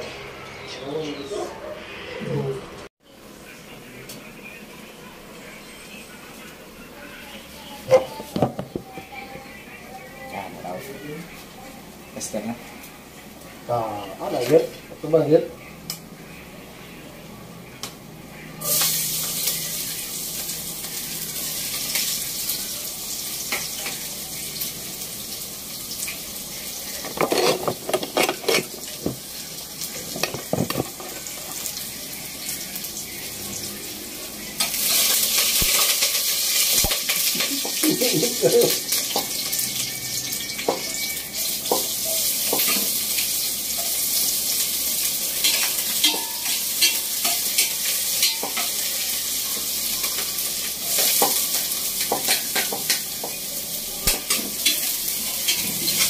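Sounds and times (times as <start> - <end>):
oil sizzling in a pot: 18.5 - 56.0
metal spoon scraping a pot: 27.2 - 28.8.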